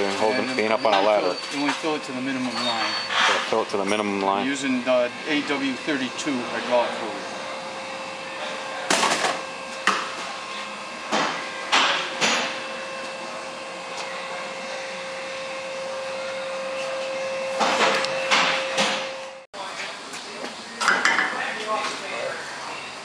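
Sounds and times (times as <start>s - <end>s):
steady hum: 0.0s - 19.5s.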